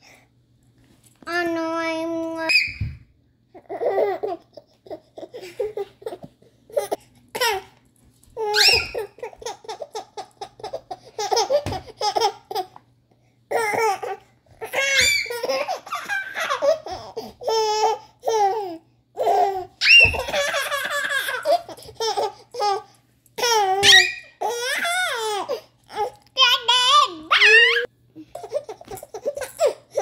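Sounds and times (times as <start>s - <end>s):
baby laughing and squealing: 8.4s - 12.7s, 13.5s - 30.0s.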